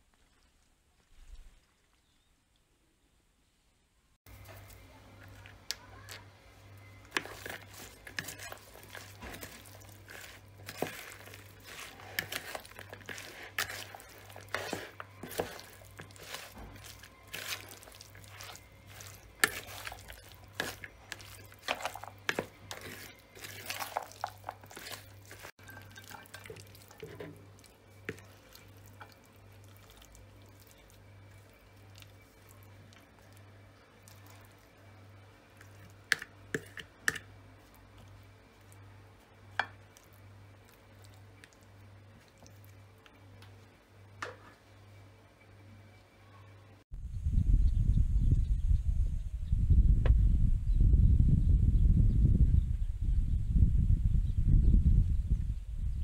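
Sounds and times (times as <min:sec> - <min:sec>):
wet salad squelching and scraping: 0:00.0 - 0:02.3, 0:04.2 - 0:44.8.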